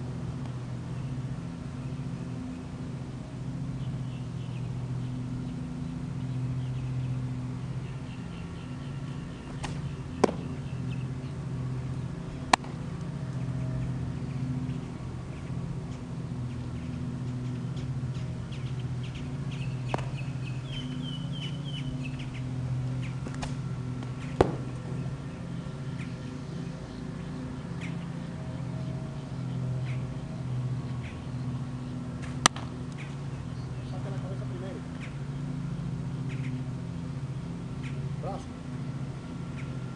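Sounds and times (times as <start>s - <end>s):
steady low hum: 0.0s - 39.9s
birds chirping: 0.4s - 39.9s
baseball smacking into glove: 9.5s - 10.5s, 12.5s - 12.8s, 19.9s - 20.2s, 24.4s - 24.8s, 32.4s - 32.7s.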